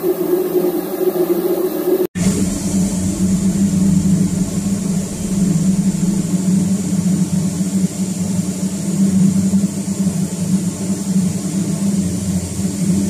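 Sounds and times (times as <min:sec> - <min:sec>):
ship machinery hum: 0:02.2 - 0:08.9.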